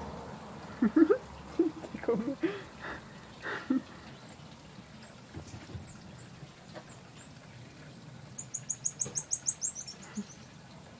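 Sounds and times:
high whistled monkey calls: 8.4 - 10.4.

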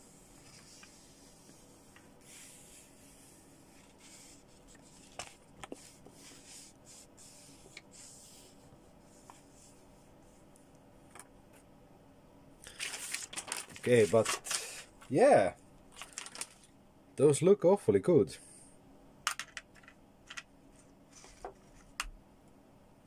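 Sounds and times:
paper leaflet rustling: 12.6 - 14.9, 15.9 - 16.7, 20.8 - 22.0.

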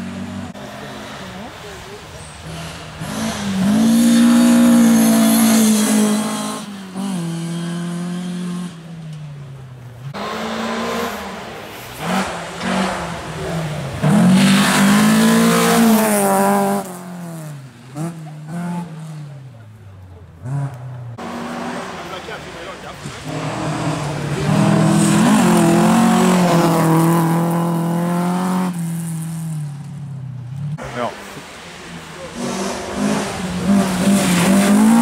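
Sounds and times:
rally car engine revving: 0.0 - 29.8, 30.5 - 35.0.

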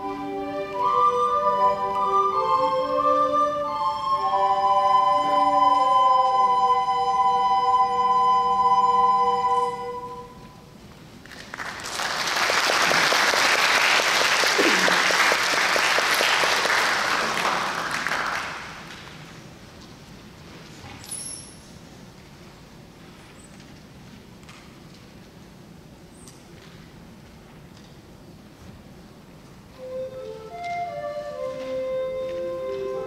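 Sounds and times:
wind ensemble sustained chord: 0.0 - 10.6
audience applauding: 11.2 - 19.2.

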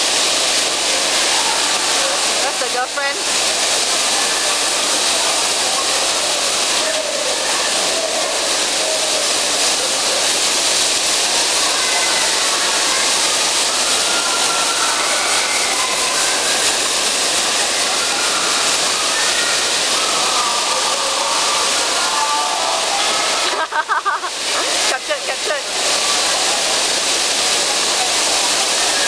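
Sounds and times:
faint voices and shouts: 0.7 - 23.6.

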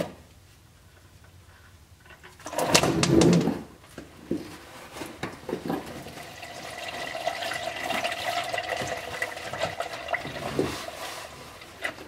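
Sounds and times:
oil pouring into drain pan: 6.0 - 10.9.

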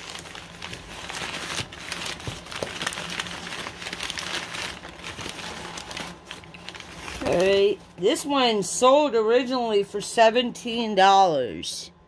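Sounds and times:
paper wrapping crinkling: 0.0 - 8.3.

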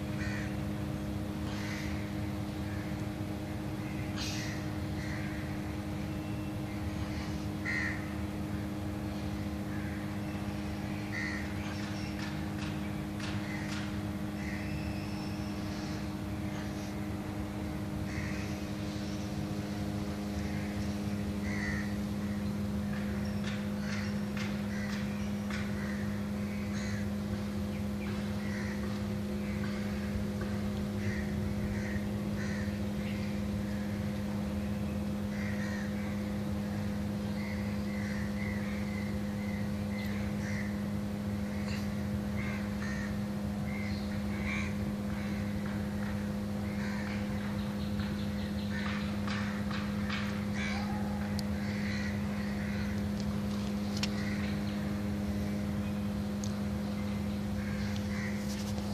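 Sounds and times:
birds calling: 0.0 - 58.9
steady low hum: 0.0 - 58.9
crows cawing: 0.1 - 0.7, 1.4 - 3.0, 3.8 - 5.8, 7.0 - 8.3, 9.6 - 10.3, 11.0 - 17.1, 17.9 - 19.2, 20.2 - 27.4, 28.0 - 34.0, 35.2 - 47.6, 48.6 - 54.9, 57.6 - 58.9.

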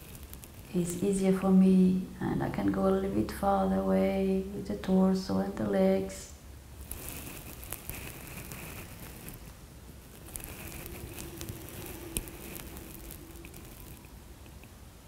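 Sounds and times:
faint crackling and ticks: 0.0 - 1.7, 6.8 - 14.8.

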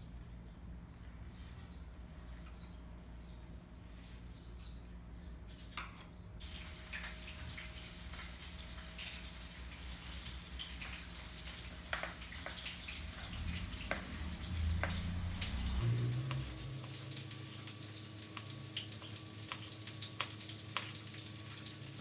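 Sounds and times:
tap water running into sink: 6.4 - 22.0.

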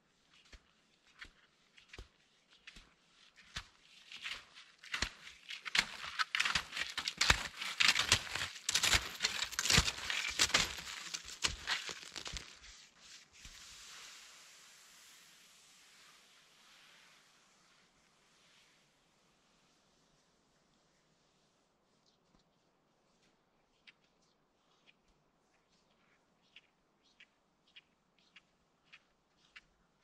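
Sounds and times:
skis crunching on crusty snow: 0.6 - 18.5
skis hissing over snow crust: 7.1 - 18.9.

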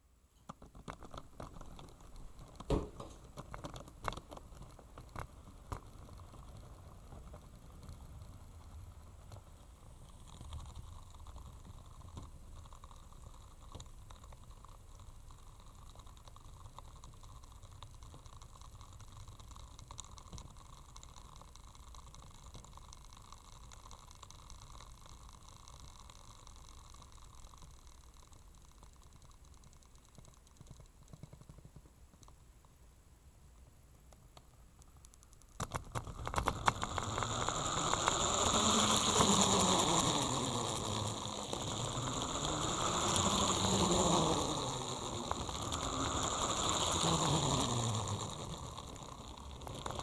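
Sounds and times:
sharp clicks and knocks: 0.4 - 6.1, 34.1 - 50.0
model roller coaster rolling: 0.5 - 32.3, 35.5 - 50.0.

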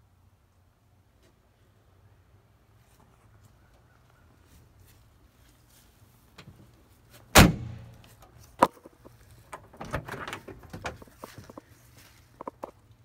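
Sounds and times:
vehicle door slamming: 7.3 - 7.9.

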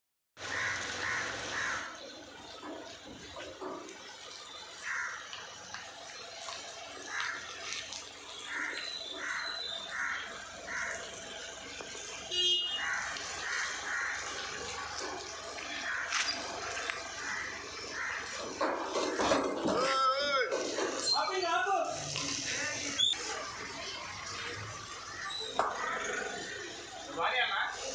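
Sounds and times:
crows cawing: 0.4 - 2.0, 4.8 - 5.4, 7.0 - 7.7, 8.5 - 11.1, 12.7 - 19.4
street background noise: 0.4 - 27.9.

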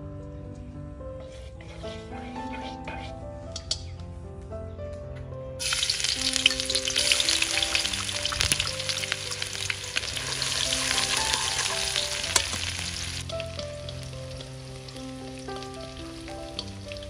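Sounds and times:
soft background music: 0.0 - 17.0
food sizzling in a pan: 5.6 - 17.0.

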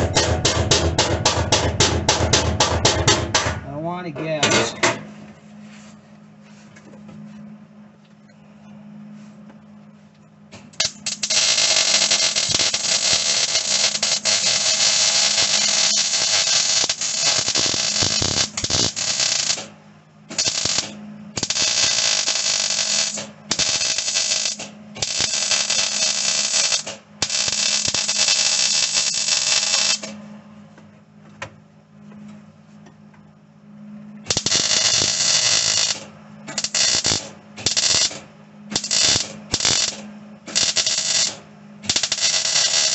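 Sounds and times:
steady low hum: 0.0 - 42.9
welder arc crackling: 10.6 - 19.7, 20.3 - 30.2, 34.3 - 42.9.

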